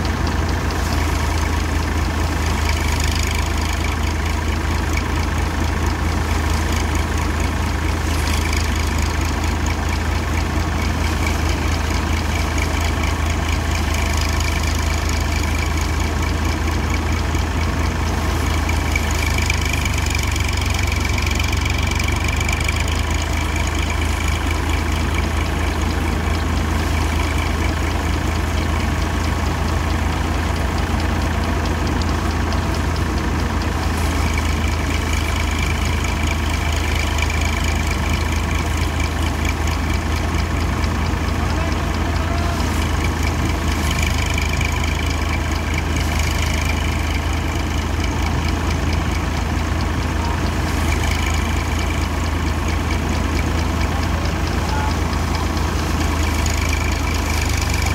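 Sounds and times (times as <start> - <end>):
tractor engine droning: 0.0 - 57.9.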